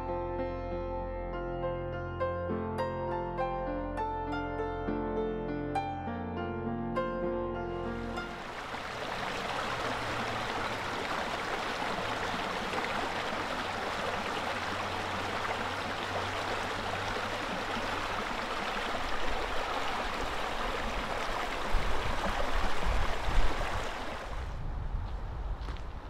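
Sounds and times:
creek babbling over stones: 8.1 - 24.4.

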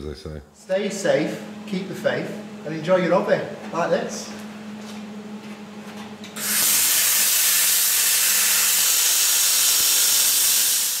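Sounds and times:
angle grinder cutting steel: 6.4 - 11.0.

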